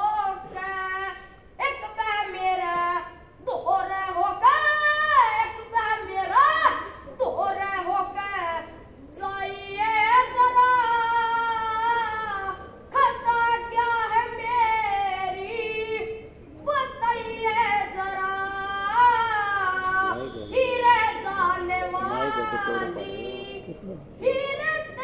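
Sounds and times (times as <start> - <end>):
boy singing unaccompanied: 0.0 - 25.0.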